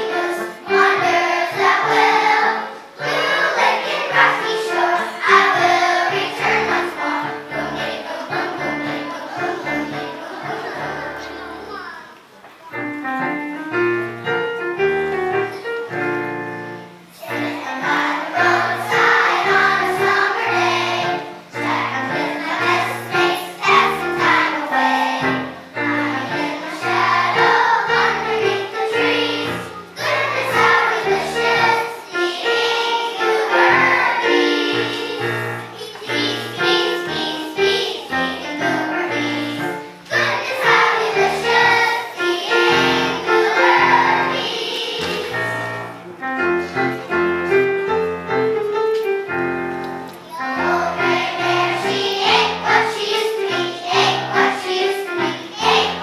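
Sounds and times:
children's choir singing: 0:00.0 - 0:56.0.

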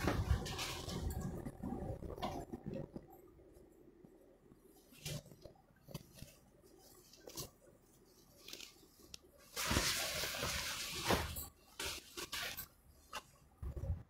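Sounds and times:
silk cloth rustling: 0:04.7 - 0:13.8.

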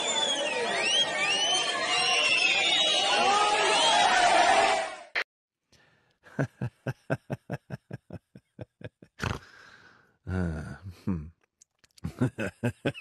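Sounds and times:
crowd shouting and cheering: 0:00.0 - 0:05.2.

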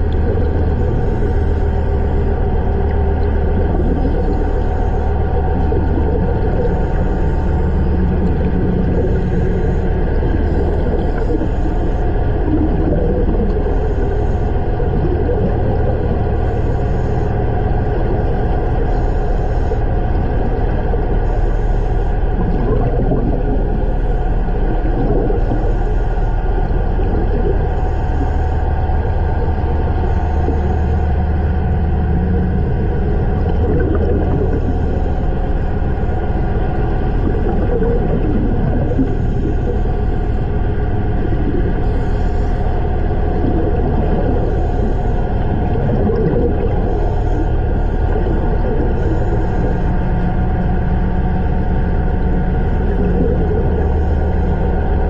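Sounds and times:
underwater water rumble: 0:00.0 - 0:55.0.

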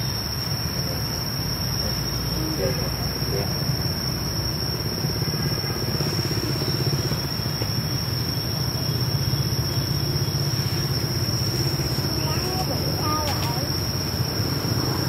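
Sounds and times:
engine running: 0:04.1 - 0:15.0.

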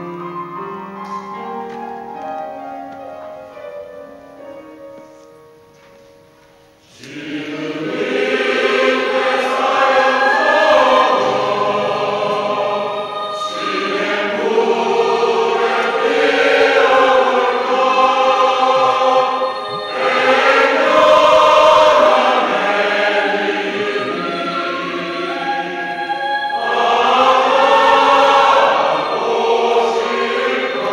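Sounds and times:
mixed choir singing: 0:06.8 - 0:30.9.

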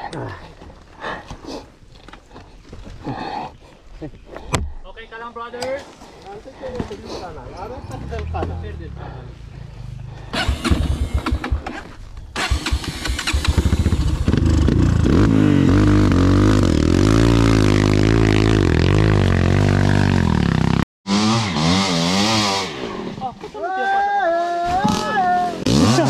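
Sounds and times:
dirt bike engine revving: 0:07.6 - 0:23.3, 0:24.9 - 0:26.0.

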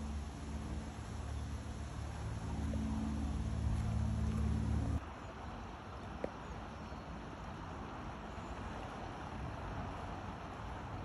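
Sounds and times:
low engine hum: 0:00.0 - 0:05.0.

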